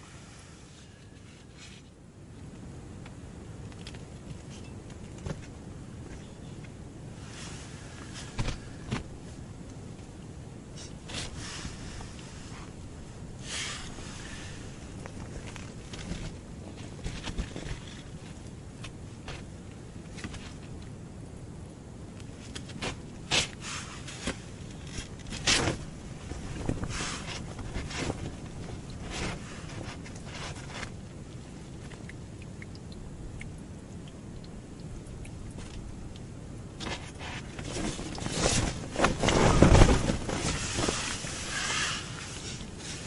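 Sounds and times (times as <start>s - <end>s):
clothing rustling: 22.4s - 30.9s, 36.8s - 43.0s
scraping: 36.8s - 43.0s.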